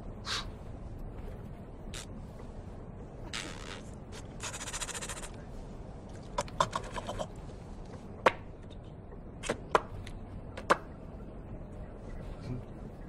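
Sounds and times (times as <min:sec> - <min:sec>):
mouth clicks and smacks: 0:06.1 - 0:07.4.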